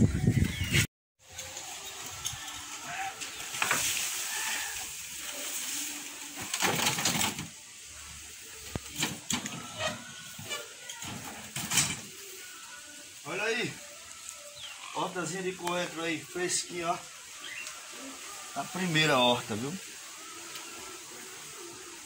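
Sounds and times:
wheelbarrow knocks and rattles: 6.4 - 7.5.

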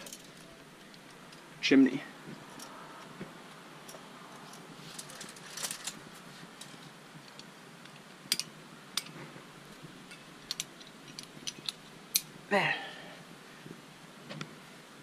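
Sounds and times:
metal climbing gear clinking: 0.0 - 1.5, 2.5 - 2.8, 3.8 - 6.0, 8.3 - 9.2, 10.0 - 12.3
faint steady hiss: 0.0 - 15.0.

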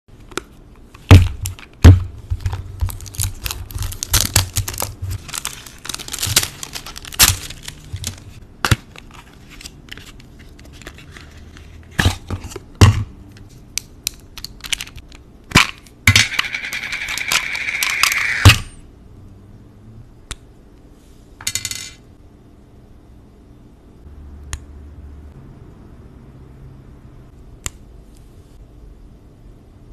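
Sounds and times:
packaging crackling: 2.8 - 8.4.

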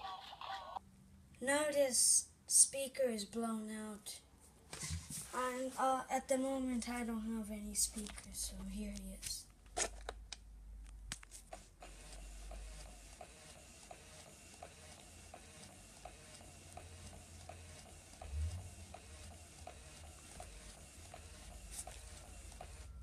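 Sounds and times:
low motor hum: 16.8 - 19.0.

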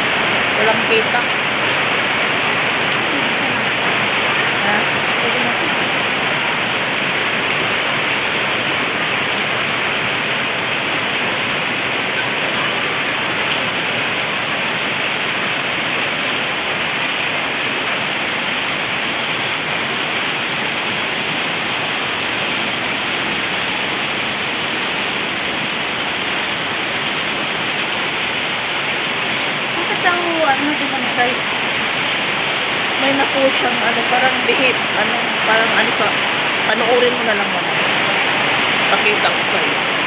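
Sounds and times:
heavy rain on corrugated roofs: 0.0 - 40.0.

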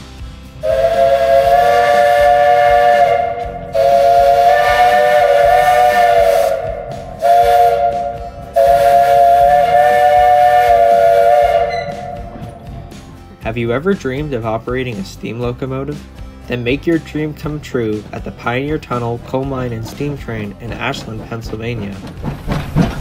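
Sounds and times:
steam whistle blasts: 0.6 - 12.6.

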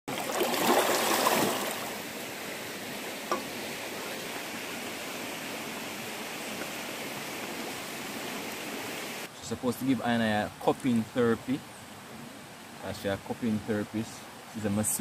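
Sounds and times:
swimmer kicking and splashing: 0.1 - 2.0
flowing river water: 0.1 - 15.0.

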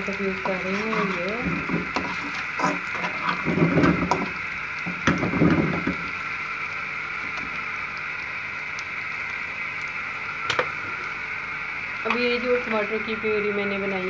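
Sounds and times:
garlic sizzling in oil: 0.0 - 14.0
metal spoon scraping a pan: 0.4 - 4.3.

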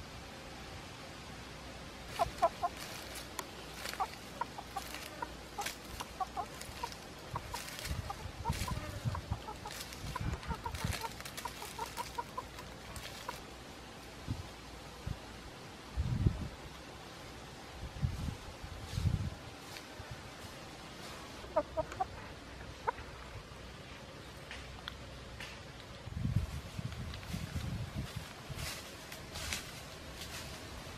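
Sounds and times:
rooster clucking: 2.0 - 13.5, 21.4 - 23.4
rustling: 2.0 - 13.6, 26.4 - 30.9.

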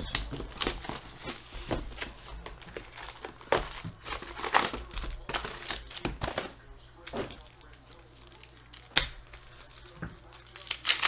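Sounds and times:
foil wrappers crinkling: 0.0 - 11.0.

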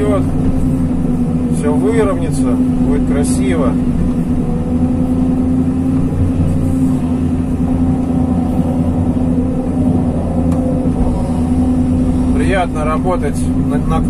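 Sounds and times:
excavator diesel engine humming: 0.0 - 14.0
hydraulics working: 0.0 - 14.0.

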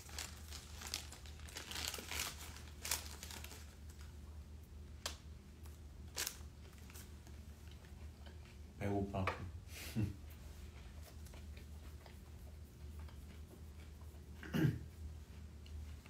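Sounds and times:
paper bag rustling: 0.0 - 4.1.

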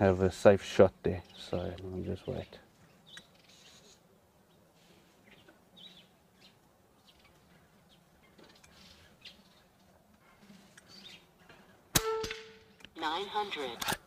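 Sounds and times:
faint bird chirps and calls: 1.2 - 11.4.

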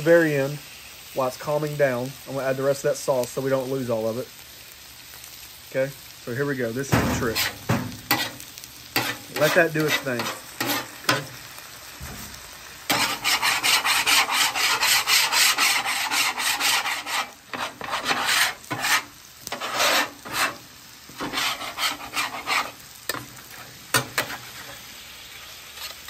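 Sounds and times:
metal scraper scraping steel griddle: 6.9 - 8.4, 9.0 - 11.3, 12.9 - 20.6, 21.2 - 24.8.

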